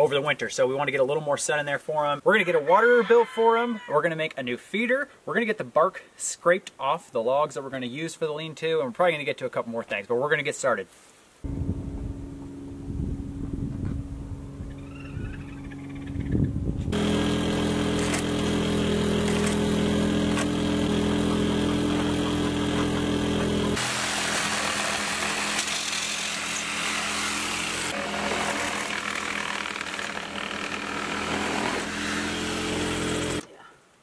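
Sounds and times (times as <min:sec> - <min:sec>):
power tool cutting wood: 0:16.9 - 0:33.4.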